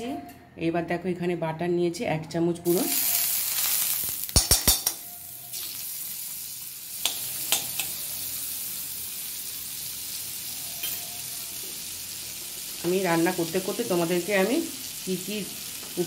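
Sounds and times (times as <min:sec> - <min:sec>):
butter sizzling in a pan: 0:02.7 - 0:16.0
metal spoon knocking on pan: 0:04.3 - 0:05.0.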